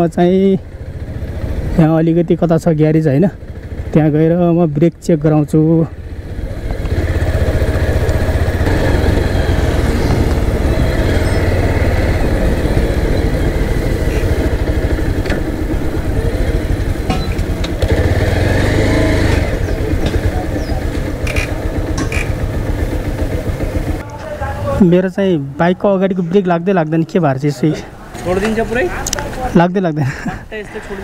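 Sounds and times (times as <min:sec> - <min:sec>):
motorcycle engine running: 0:00.0 - 0:24.8
wind and road noise: 0:00.0 - 0:31.0.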